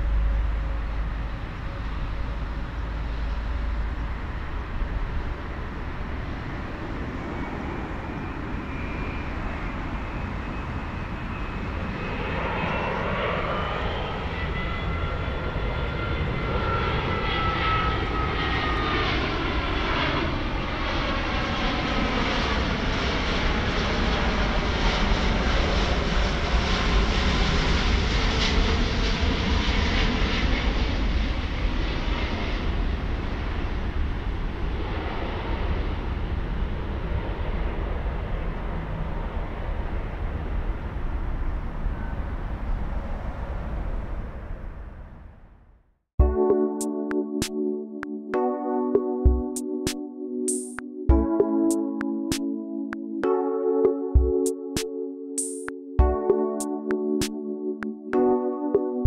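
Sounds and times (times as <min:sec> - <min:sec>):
jet rumble with whining tones: 0:00.0 - 0:45.8.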